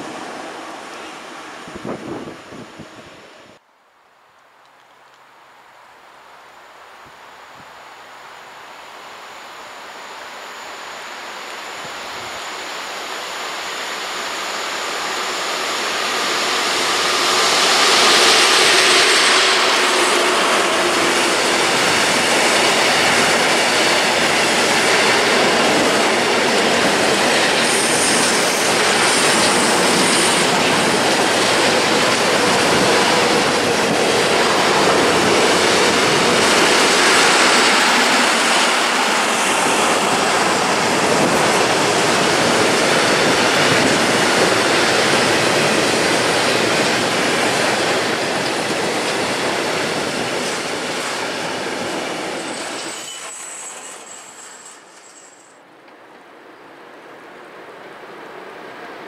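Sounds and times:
train wheels rushing on rail: 0.0 - 3.6, 9.1 - 59.0
wheel squeal: 52.3 - 55.6.

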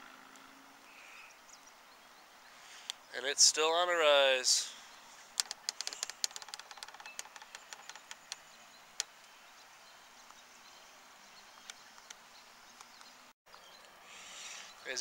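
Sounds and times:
faint outdoor noise: 0.0 - 15.0
faint clicks and ticks: 5.4 - 9.4.

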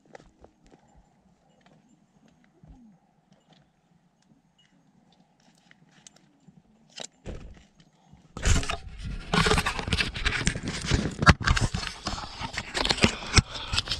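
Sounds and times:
microphone rubbing on clothing: 8.4 - 13.9.

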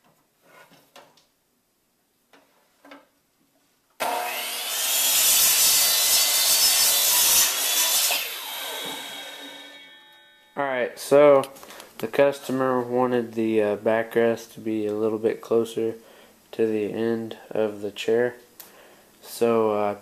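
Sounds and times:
miter saw cutting wood: 4.0 - 9.9
saw blade winding down: 4.0 - 10.0.

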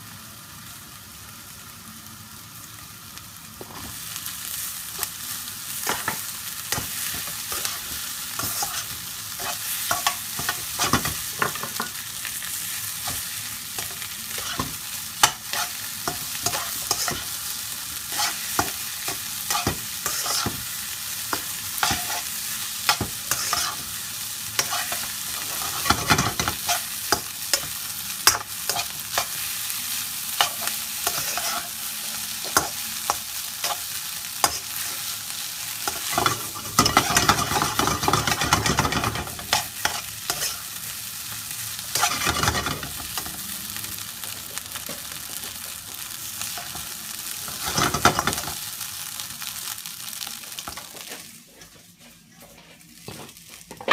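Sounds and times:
rice sizzling in a wok: 0.0 - 53.9
metal spoon scraping a wok: 22.9 - 23.9, 30.4 - 31.8, 35.9 - 40.6.

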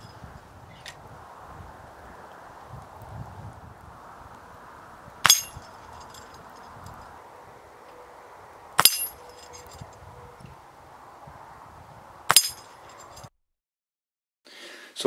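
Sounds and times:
pellets clanging on steel target: 5.2 - 6.7, 8.8 - 9.8, 12.3 - 13.2.

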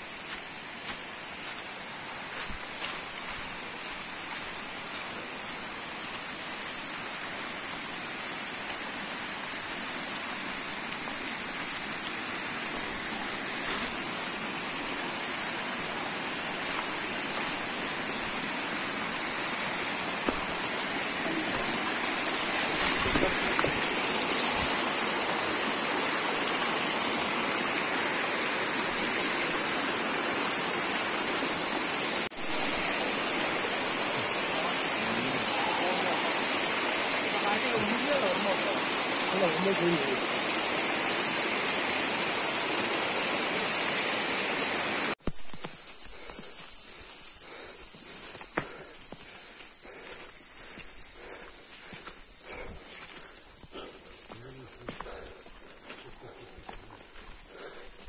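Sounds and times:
stream rushing over rocks: 0.0 - 45.2.

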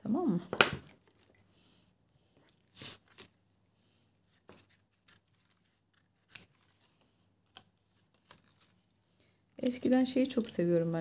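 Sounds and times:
scissors snipping paper: 4.3 - 8.7.

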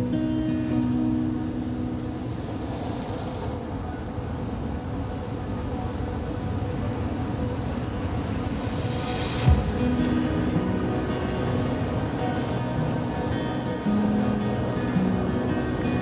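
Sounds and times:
ocean surf on rocky shore: 0.0 - 8.9, 9.5 - 16.0.

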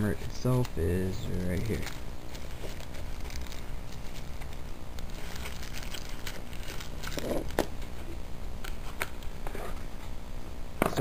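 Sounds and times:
plastic packaging crinkling: 0.4 - 7.9.

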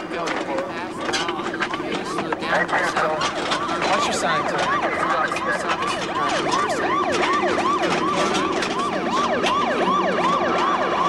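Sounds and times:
emergency vehicle sirens yelping: 0.0 - 11.0.

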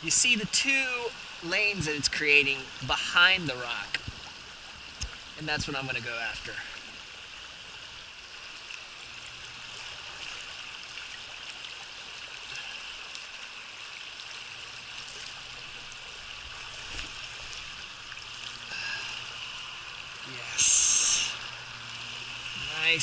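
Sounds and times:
water flowing over rocks: 0.0 - 23.0
faint ticks: 12.5 - 13.3.

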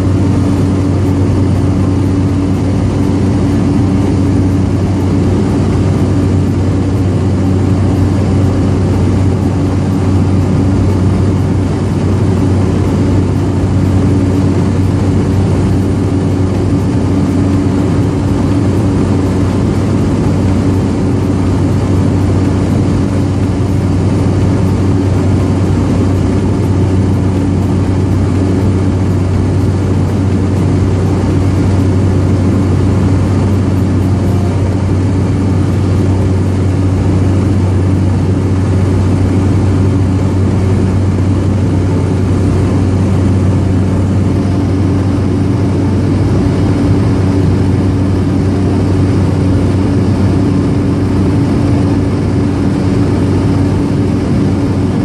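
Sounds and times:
propeller plane cabin drone: 0.0 - 55.0.

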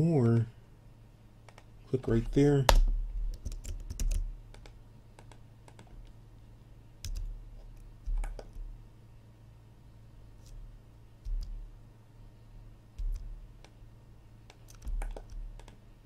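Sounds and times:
steady low hum: 0.0 - 16.0
keyboard and mouse clicking: 2.7 - 6.2, 7.0 - 8.7, 11.2 - 11.6, 13.0 - 13.8, 14.5 - 15.8.

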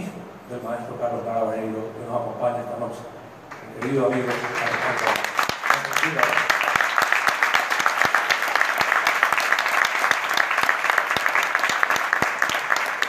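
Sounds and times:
audience applauding: 3.5 - 13.0.

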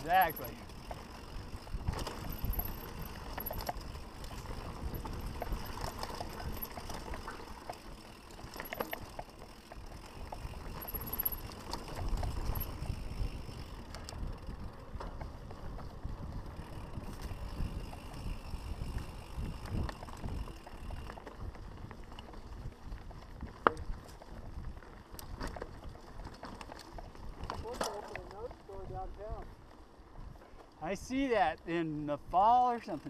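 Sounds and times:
bike rattling over bumps: 0.0 - 31.5
bike tyre noise on dirt: 0.0 - 33.0
wind rumble on microphone: 0.8 - 7.2, 10.2 - 26.3.

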